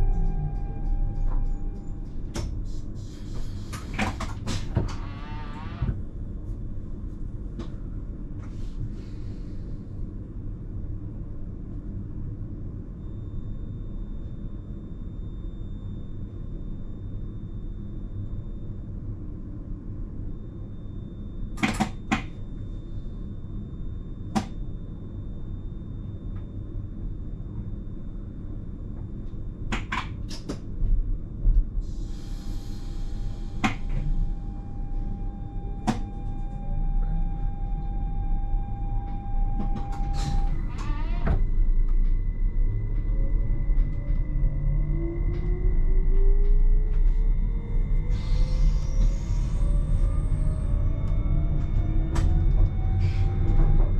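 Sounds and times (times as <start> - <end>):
steady tone: 0.0 - 2.9
train cab low rumble: 0.0 - 53.9.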